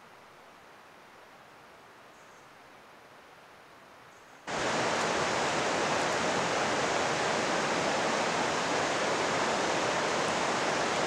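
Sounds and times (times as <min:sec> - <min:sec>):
faint hiss: 0:00.0 - 0:11.0
river rushing over rocks: 0:04.5 - 0:11.0.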